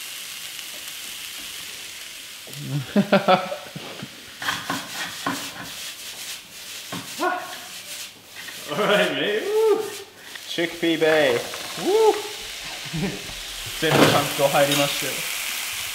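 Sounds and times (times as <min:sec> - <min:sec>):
vegetables sizzling in frying pan: 0:00.0 - 0:15.9
wooden spatula stirring: 0:03.8 - 0:15.0
pan clattering: 0:11.0 - 0:12.3, 0:13.7 - 0:15.0.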